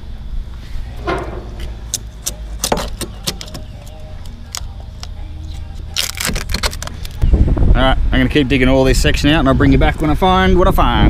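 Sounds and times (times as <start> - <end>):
low rumble: 0.6 - 2.7.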